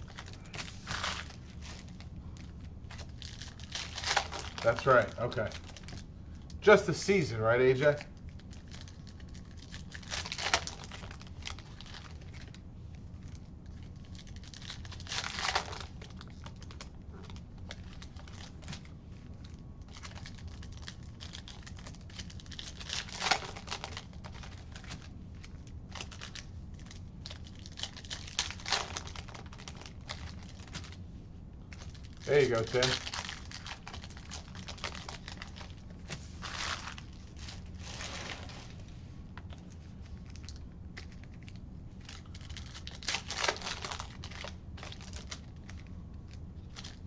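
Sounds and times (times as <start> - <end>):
plastic wrapper crinkling and tearing: 0.0 - 31.0, 31.6 - 47.0
cards clicking and shuffling: 31.8 - 33.1.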